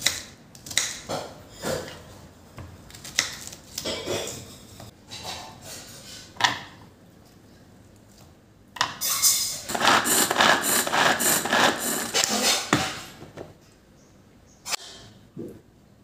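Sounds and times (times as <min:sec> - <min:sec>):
vegetable chopper whirring clatter: 0:09.7 - 0:12.5.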